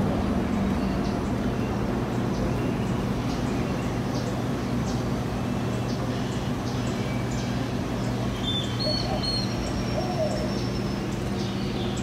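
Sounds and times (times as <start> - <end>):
small birds chirping: 0.4 - 12.0
whistled bird notes: 8.4 - 12.0.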